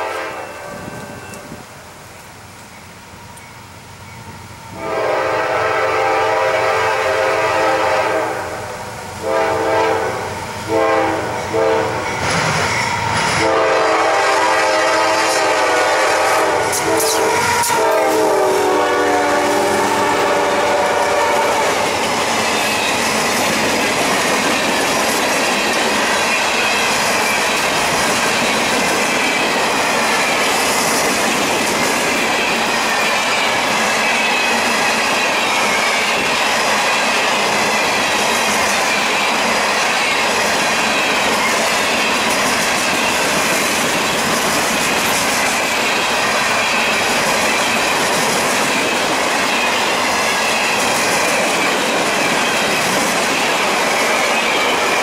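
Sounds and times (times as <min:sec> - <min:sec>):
freight train horn: 0:00.0 - 0:01.7, 0:04.7 - 0:12.2, 0:13.3 - 0:22.9
train wheels clattering over rails: 0:11.3 - 0:55.0.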